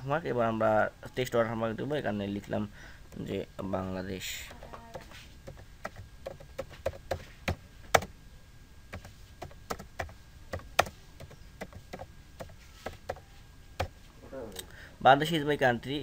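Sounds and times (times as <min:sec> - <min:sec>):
computer keyboard typing: 0:04.9 - 0:08.1, 0:08.9 - 0:14.0.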